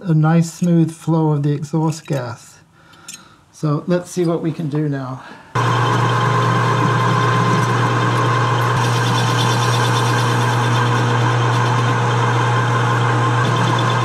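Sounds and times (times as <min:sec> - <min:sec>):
lathe motor hum: 0:05.6 - 0:14.0
metal cutting noise: 0:05.6 - 0:14.0.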